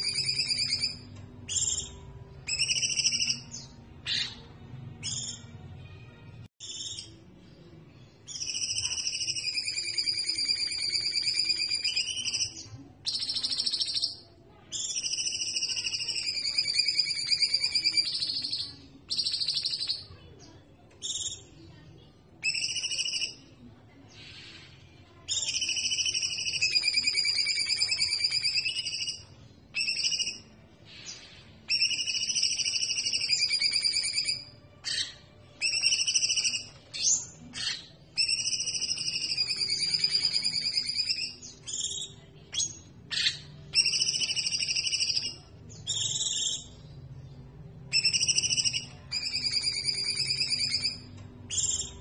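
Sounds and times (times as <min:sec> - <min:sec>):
songbird warbling whistles: 0:47.9 - 0:51.9.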